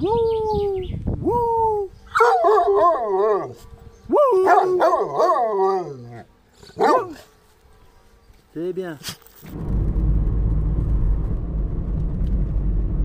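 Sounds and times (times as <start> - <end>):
dog howling: 1.7 - 7.3.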